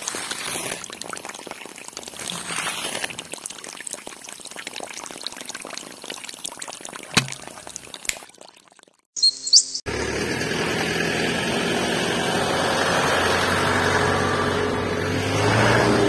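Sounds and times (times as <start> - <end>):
water pouring and splashing: 0.0 - 9.1
sharp tap: 7.2 - 7.4.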